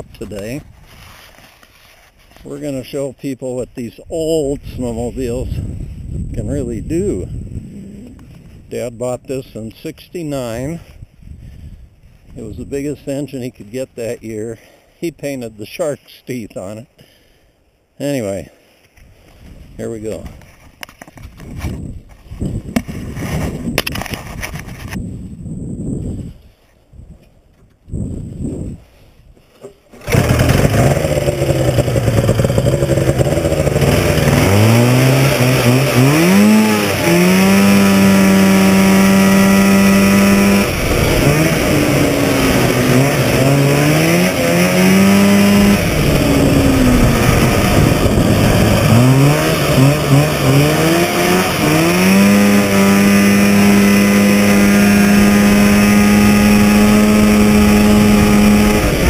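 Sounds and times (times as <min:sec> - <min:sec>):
snowmobile engine running: 0:30.0 - 0:59.0.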